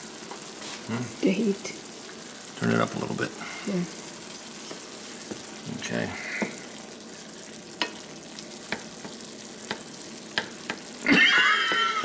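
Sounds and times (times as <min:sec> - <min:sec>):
food sizzling in a frying pan: 0:00.0 - 0:12.0
utensil clicking against pan: 0:07.8 - 0:08.0, 0:08.6 - 0:10.9.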